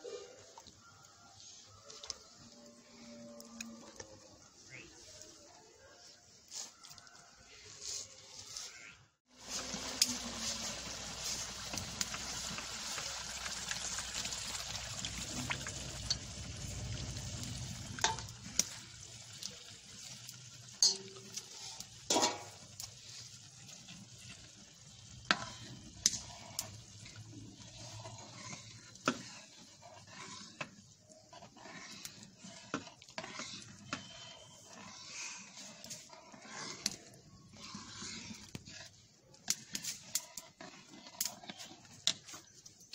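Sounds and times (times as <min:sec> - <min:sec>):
batter sizzling in hot pan: 0:09.3 - 0:42.9
metal ladle clinking against pan: 0:20.8 - 0:21.4, 0:22.1 - 0:22.6.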